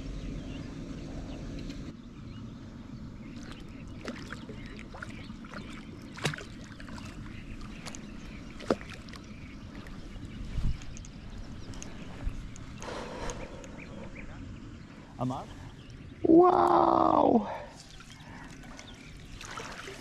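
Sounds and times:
water splashing and sloshing: 0:03.2 - 0:12.7, 0:17.4 - 0:20.0.

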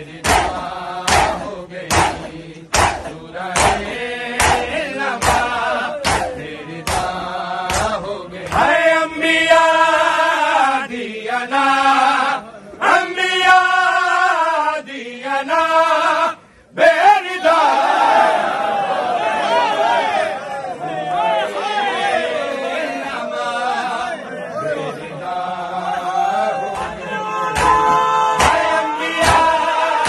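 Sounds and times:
group chanting: 0:00.0 - 0:30.0
chest beating slaps: 0:00.2 - 0:08.7, 0:27.6 - 0:29.6.

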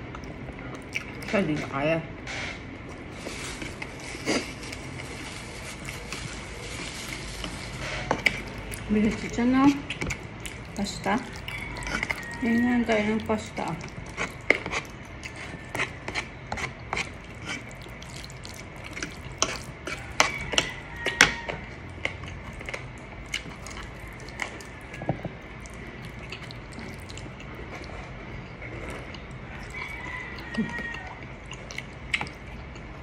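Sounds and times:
wet chewing and slurping: 0:00.0 - 0:01.5, 0:02.4 - 0:33.0.

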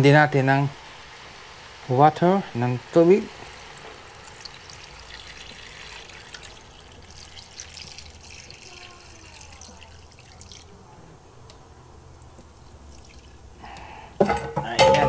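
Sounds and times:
water pouring into a pot: 0:02.5 - 0:10.8, 0:12.6 - 0:13.6.

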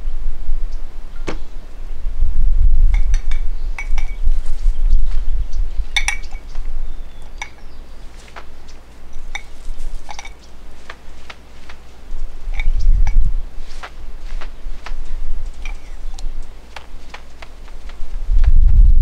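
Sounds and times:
wind buffeting microphone: 0:00.0 - 0:19.0
light clicks and clinks: 0:02.9 - 0:04.3, 0:06.0 - 0:11.9, 0:12.5 - 0:13.9, 0:14.8 - 0:17.6.

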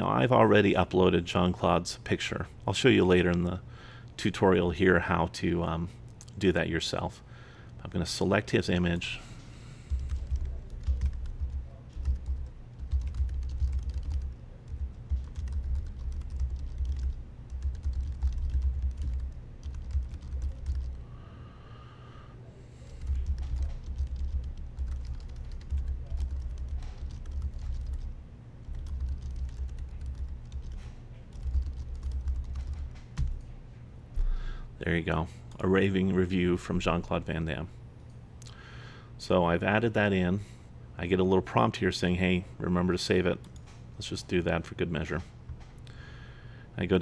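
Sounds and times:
typing on computer keyboard: 0:09.9 - 0:21.0, 0:23.0 - 0:33.4.

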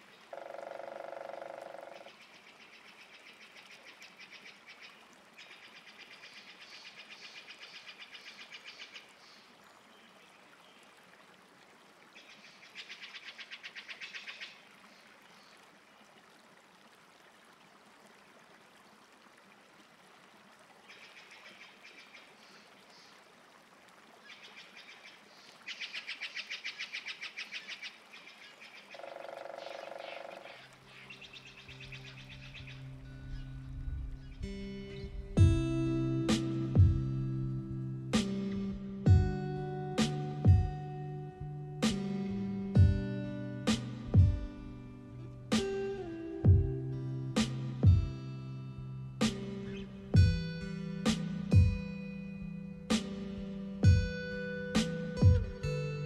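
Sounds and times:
rapid pulsed animal trills: 0:00.3 - 0:02.1
guitar music: 0:34.4 - 0:56.0.

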